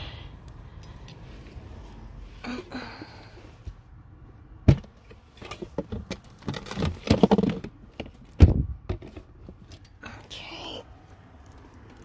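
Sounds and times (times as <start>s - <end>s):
clatter of objects: 4.7s - 9.9s
rummaging knocks and clicks: 4.7s - 9.9s.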